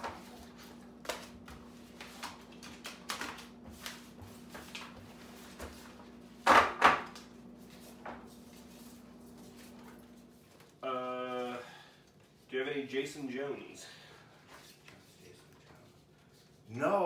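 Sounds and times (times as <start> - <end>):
paper flyers shuffling: 0.0 - 6.3
paper stack knocking on table: 6.4 - 7.2.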